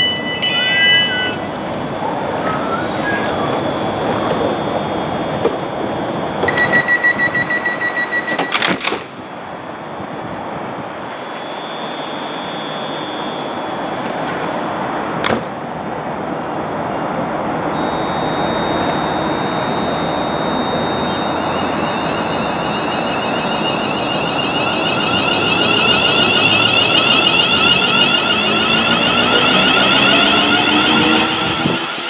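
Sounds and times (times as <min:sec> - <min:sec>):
high door warning beeps: 0:00.0 - 0:05.4, 0:06.4 - 0:09.0, 0:11.2 - 0:13.9, 0:16.8 - 0:32.0
train rumble: 0:00.0 - 0:08.4, 0:20.5 - 0:32.0.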